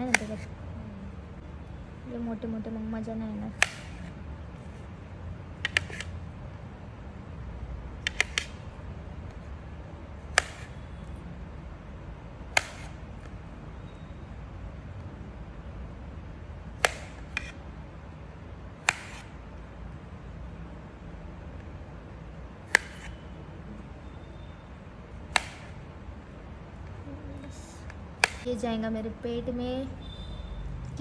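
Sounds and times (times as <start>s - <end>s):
low steady hum: 0.0s - 31.0s
knife chopping onto plastic plate: 18.8s - 19.3s, 22.7s - 23.2s, 28.2s - 28.5s.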